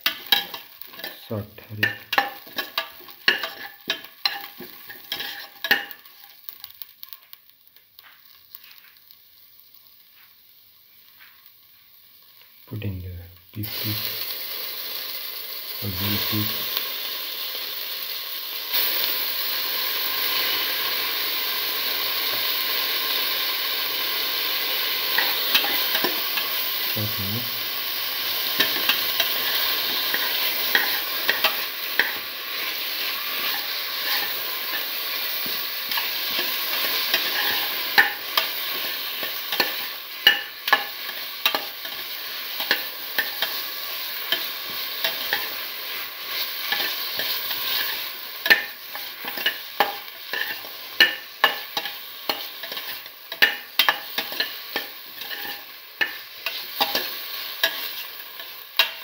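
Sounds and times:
spoon knocking and scraping pan: 0.0s - 1.2s, 1.8s - 6.6s, 25.1s - 26.5s, 28.4s - 59.0s
meat sizzling in a pan: 0.0s - 59.0s.

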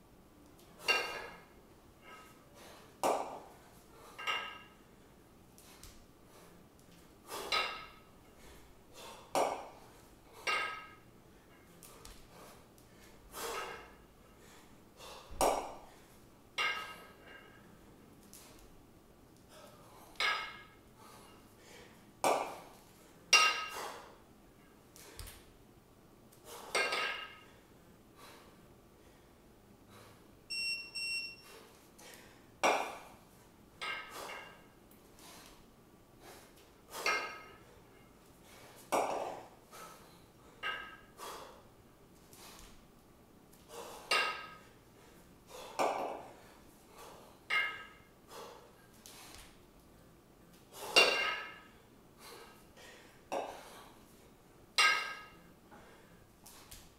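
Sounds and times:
kettlebells clinking together: 0.8s - 2.4s, 3.0s - 4.8s, 7.3s - 8.1s, 9.0s - 12.2s, 13.4s - 14.0s, 16.6s - 17.6s, 20.1s - 20.8s, 22.2s - 24.0s, 26.5s - 27.6s, 32.6s - 33.1s, 33.8s - 34.8s, 36.9s - 38.2s, 40.6s - 41.2s, 43.7s - 44.8s, 45.7s - 46.4s, 47.5s - 48.1s, 50.8s - 51.8s, 54.7s - 55.5s.

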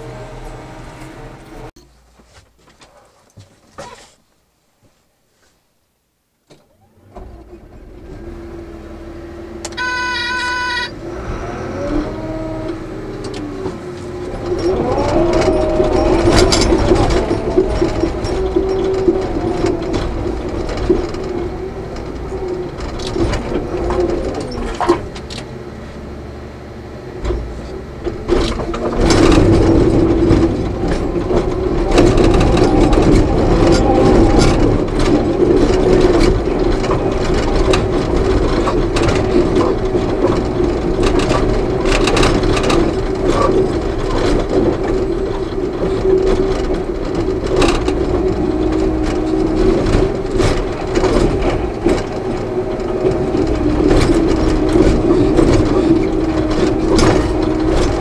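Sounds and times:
dozer diesel engine: 0.0s - 2.2s, 6.6s - 58.0s
electronic beep: 9.8s - 10.9s.

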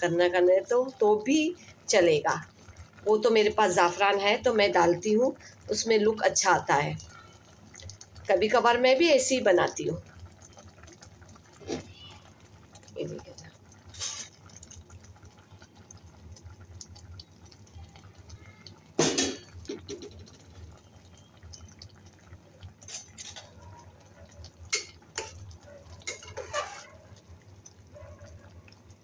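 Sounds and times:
metal spatula clinking on pot: 24.7s - 26.9s.

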